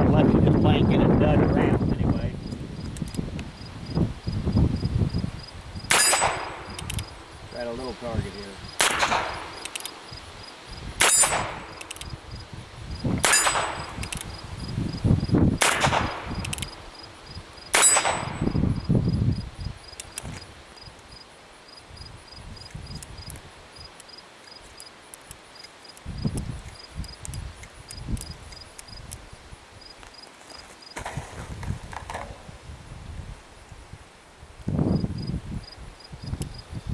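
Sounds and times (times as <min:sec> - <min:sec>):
steel target ringing: 0:05.9 - 0:06.7, 0:13.2 - 0:14.0, 0:17.8 - 0:18.6
revolver metallic clicks: 0:05.9 - 0:07.1, 0:08.8 - 0:10.0, 0:11.0 - 0:12.1, 0:13.2 - 0:14.3, 0:15.6 - 0:16.8.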